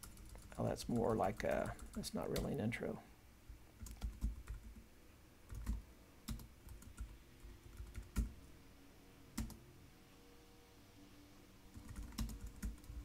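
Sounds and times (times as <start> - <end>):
typing on computer keyboard: 0.0 - 2.5, 3.8 - 4.8, 5.5 - 8.3, 9.4 - 9.6, 11.7 - 13.0.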